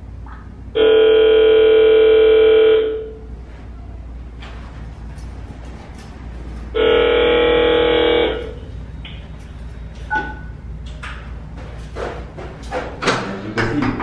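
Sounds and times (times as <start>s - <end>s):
loud steady tone: 0.0s - 4.2s, 6.5s - 10.9s.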